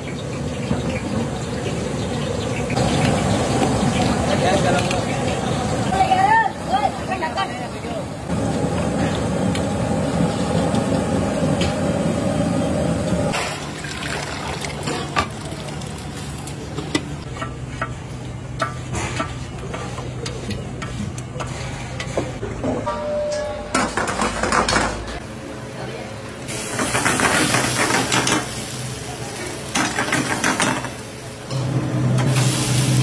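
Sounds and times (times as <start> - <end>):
pot boiling hard: 8.3 - 17.3
garlic sizzling in oil: 26.5 - 33.0.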